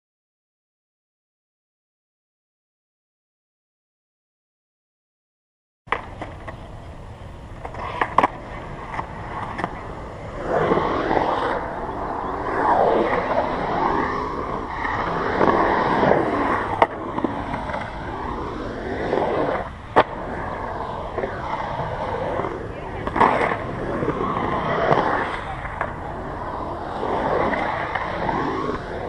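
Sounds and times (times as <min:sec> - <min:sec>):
skateboard clacks: 0:05.9 - 0:29.0
skateboard wheels rolling on concrete: 0:05.9 - 0:29.0.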